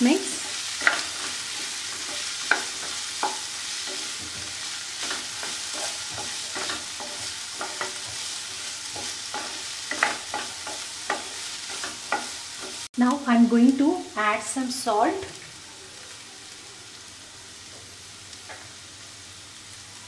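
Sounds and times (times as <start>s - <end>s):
vegetables sizzling in oil: 0.0s - 20.0s
spatula scraping a pan: 0.4s - 12.9s.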